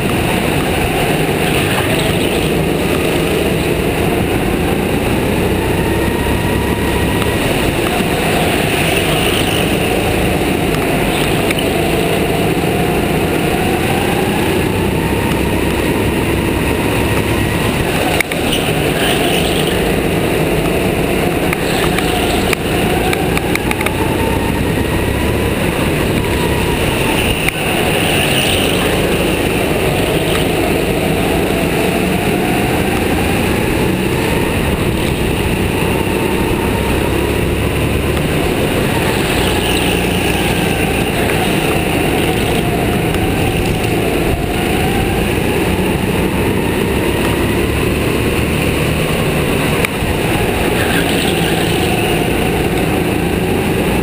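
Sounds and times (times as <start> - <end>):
go-kart engine revving: 0.0 - 54.0.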